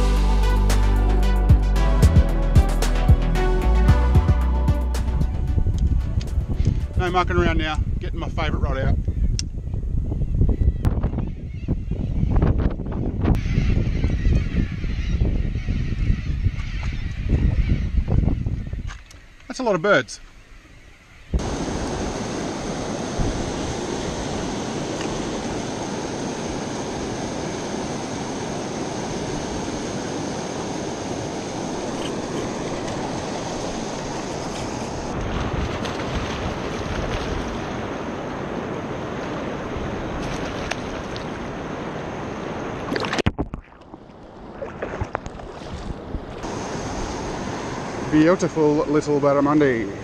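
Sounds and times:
water rushing over rapids: 0:21.4 - 0:50.0.

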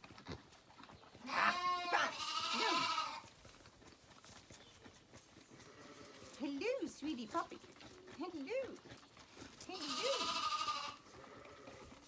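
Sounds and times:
lambs bleating: 0:01.2 - 0:03.2, 0:05.6 - 0:06.4, 0:09.7 - 0:11.9.

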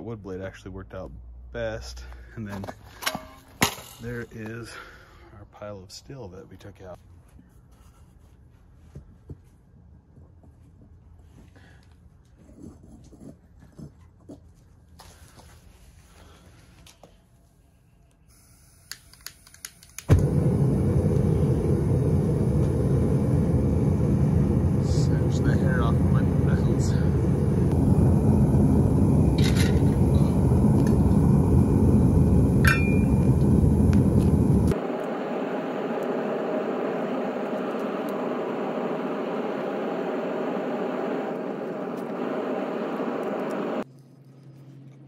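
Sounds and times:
gas burner roaring: 0:18.3 - 0:43.8.

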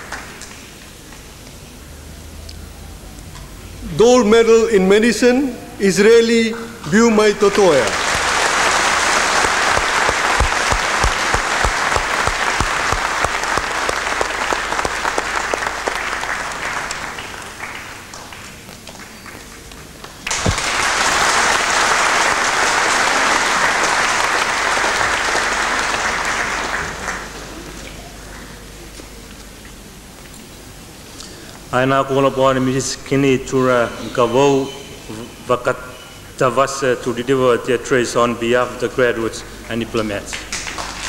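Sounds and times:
audience applauding: 0:00.0 - 0:00.6, 0:07.4 - 0:28.7, 0:40.3 - 0:41.0.

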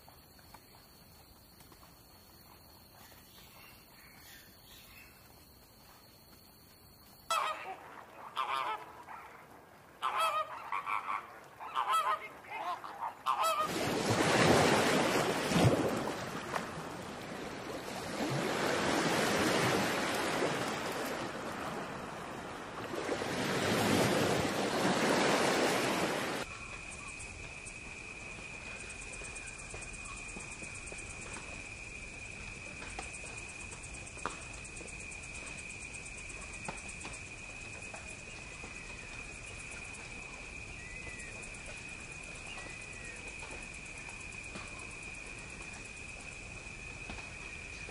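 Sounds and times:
surf breaking: 0:13.6 - 0:26.4.

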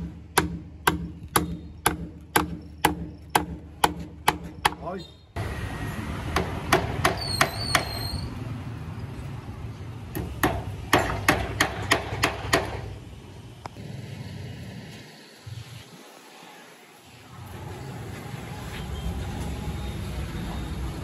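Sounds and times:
hammer strikes: 0:00.0 - 0:04.8, 0:06.3 - 0:07.9, 0:10.1 - 0:12.9.

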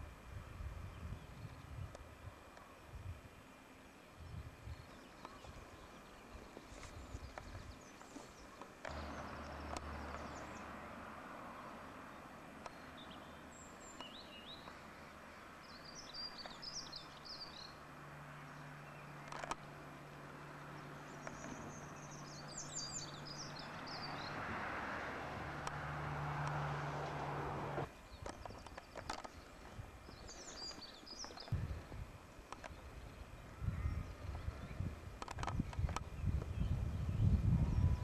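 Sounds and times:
background hiss: 0:00.0 - 0:24.2
songbird chirping: 0:00.9 - 0:38.0.

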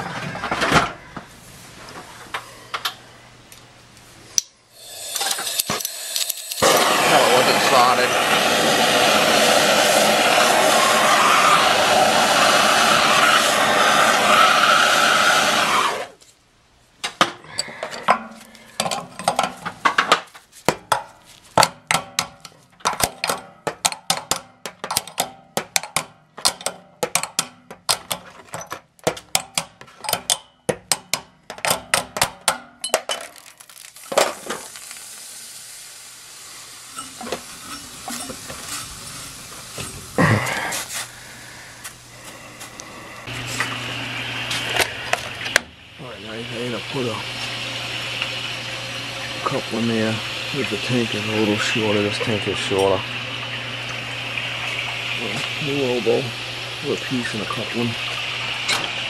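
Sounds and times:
torch flame hissing: 0:04.7 - 0:16.2, 0:33.9 - 0:43.7
faint steady hiss: 0:33.9 - 0:43.4.

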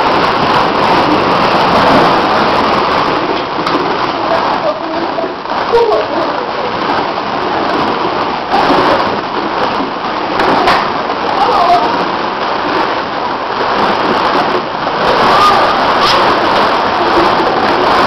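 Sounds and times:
children's voices: 0:04.2 - 0:06.8, 0:10.5 - 0:12.0.

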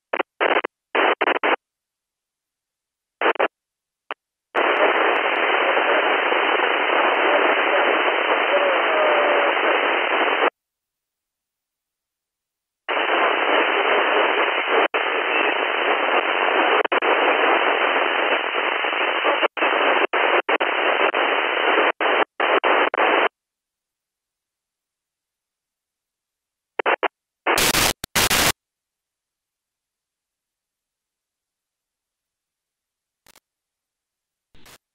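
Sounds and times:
radio receiver hiss: 0:00.1 - 0:01.6, 0:03.2 - 0:03.5, 0:04.6 - 0:10.5, 0:12.9 - 0:23.3, 0:26.8 - 0:28.6.

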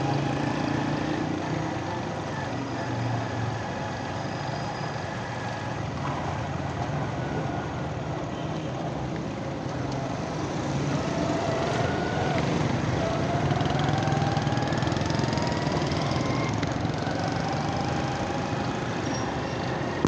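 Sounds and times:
road and traffic noise: 0:00.0 - 0:20.0
vehicle engine rising: 0:09.3 - 0:20.0
motorcycle engine running: 0:10.7 - 0:19.0.

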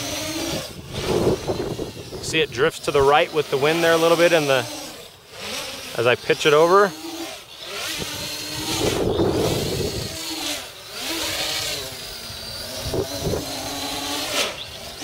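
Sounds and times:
wind rumble on microphone: 0:00.0 - 0:02.8, 0:08.0 - 0:10.2, 0:12.5 - 0:13.9
drone motors buzzing: 0:00.0 - 0:15.0.

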